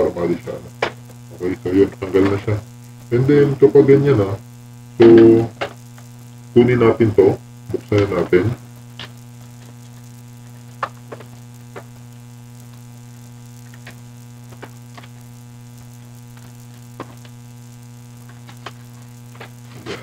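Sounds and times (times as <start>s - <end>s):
electrical mains hum: 0.0s - 20.0s
plastic packaging crackling: 13.6s - 20.0s.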